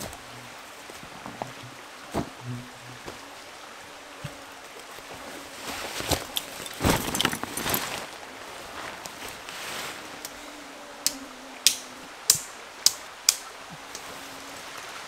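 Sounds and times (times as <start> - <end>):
steady hiss: 0.0 - 15.0
camping gear rustling and clinking: 4.2 - 10.2.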